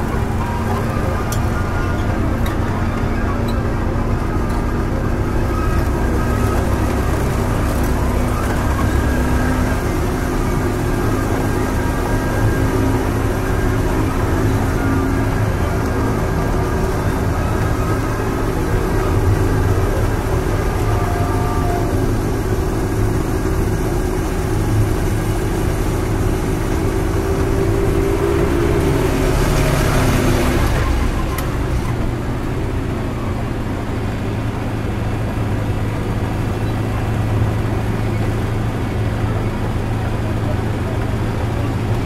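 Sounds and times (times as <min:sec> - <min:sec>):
ride train low drone: 0:00.0 - 0:42.0.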